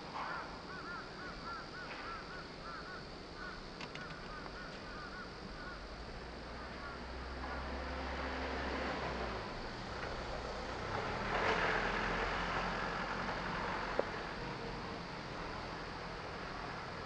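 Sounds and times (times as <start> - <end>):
truck driving past: 6.2 - 17.0.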